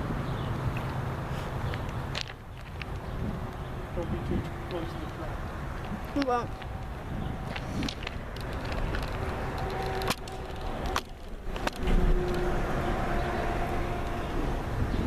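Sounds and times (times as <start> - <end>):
freight train rumble: 3.0 - 15.0.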